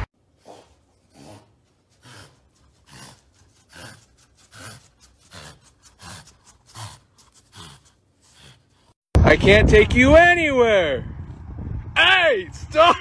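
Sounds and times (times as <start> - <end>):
dog breathing noisily: 0.3 - 9.0.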